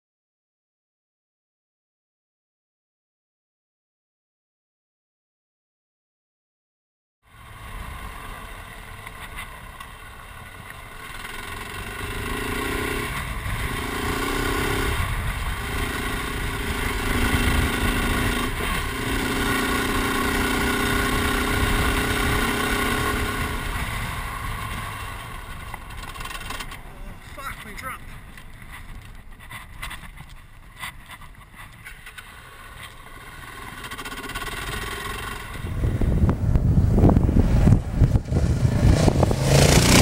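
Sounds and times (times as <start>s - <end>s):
motorcycle engine running: 7.3s - 27.2s, 28.3s - 40.0s.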